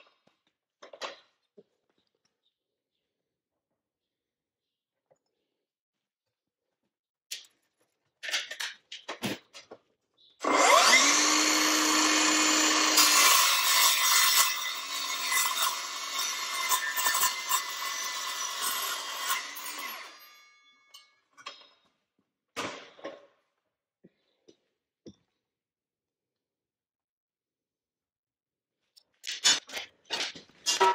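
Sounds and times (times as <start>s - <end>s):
circular saw cutting steel tubing: 10.4s - 21.1s.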